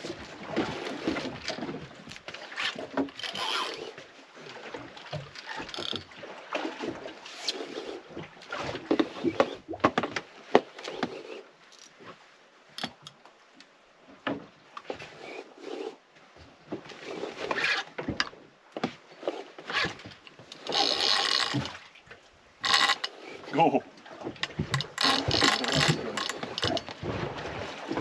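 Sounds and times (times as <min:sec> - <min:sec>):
fishing reel scrapes and clicks: 0:02.6 - 0:03.9, 0:05.4 - 0:06.0, 0:19.2 - 0:21.8, 0:22.6 - 0:23.4, 0:24.8 - 0:26.9.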